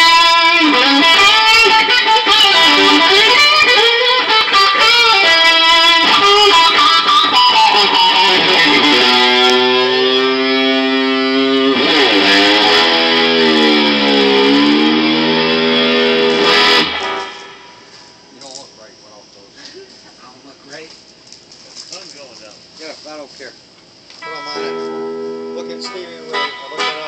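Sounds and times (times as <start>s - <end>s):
electric guitar lead notes: 0.0s - 18.3s, 24.2s - 27.0s.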